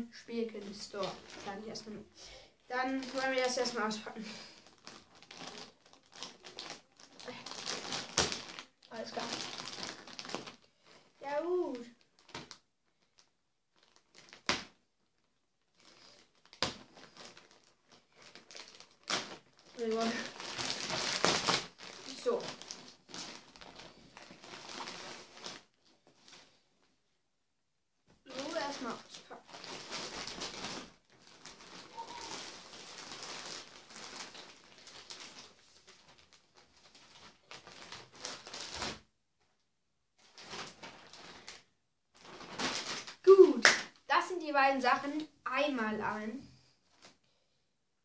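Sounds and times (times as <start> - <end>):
plastic bag crinkling: 0.3 - 26.6, 28.3 - 39.0, 40.2 - 45.0, 46.8 - 47.2
plastic cracks: 4.6 - 10.7, 12.0 - 26.4.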